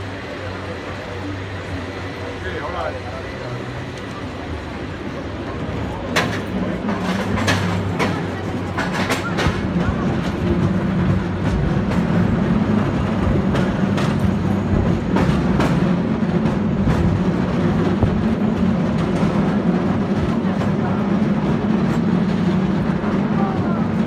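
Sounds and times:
cable car rumbling on track: 0:00.0 - 0:24.0
sharp clicks and clacks: 0:06.1 - 0:12.2.

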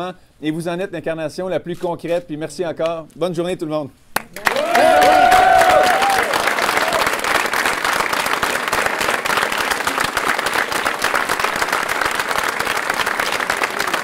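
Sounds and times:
crowd applauding: 0:04.2 - 0:14.0
crowd cheering: 0:04.3 - 0:14.0.

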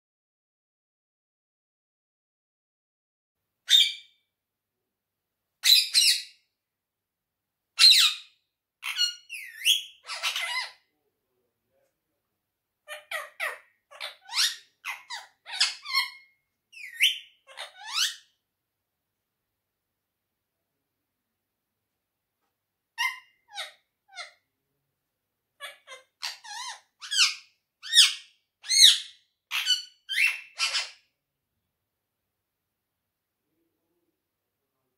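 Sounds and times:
parakeet squawking and chirping: 0:03.7 - 0:04.2, 0:05.6 - 0:06.4, 0:07.8 - 0:10.8, 0:12.8 - 0:18.3, 0:23.0 - 0:24.4, 0:25.6 - 0:31.1.

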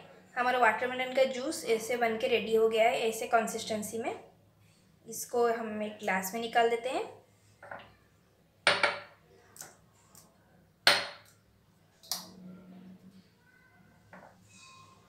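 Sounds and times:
jars and tumblers knocking on counter: 0:08.7 - 0:09.2.

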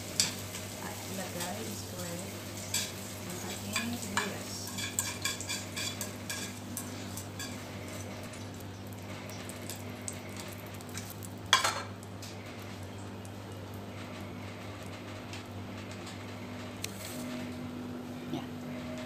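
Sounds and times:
utensil scraping frying pan: 0:00.0 - 0:08.4
light sizzle: 0:00.0 - 0:19.0.

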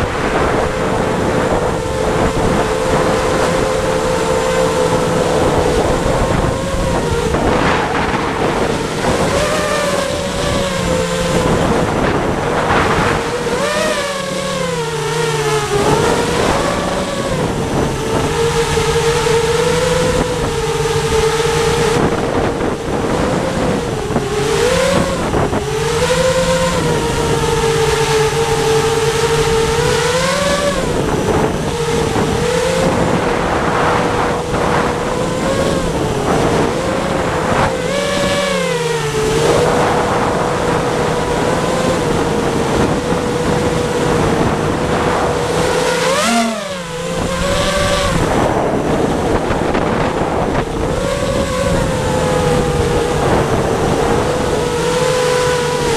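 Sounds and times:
wind rushing: 0:00.0 - 0:13.6
drone motors whining: 0:00.0 - 0:55.9.

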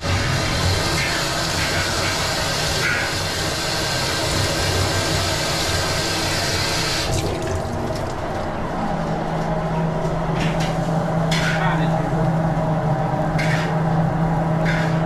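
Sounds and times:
tap water running into metal sink: 0:00.1 - 0:08.4.

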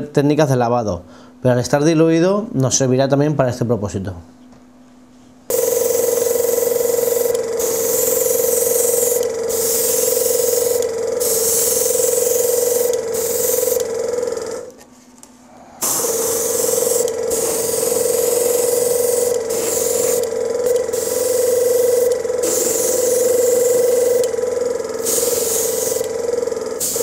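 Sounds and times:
steady hum: 0:04.2 - 0:27.0
airbrush hissing: 0:05.5 - 0:14.6, 0:15.8 - 0:27.0.

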